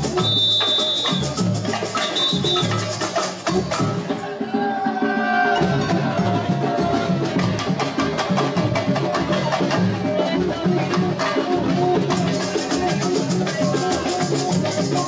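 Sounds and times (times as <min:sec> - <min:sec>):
sharp percussion strikes: 0:00.0 - 0:15.0
deep drums beat: 0:05.6 - 0:15.0.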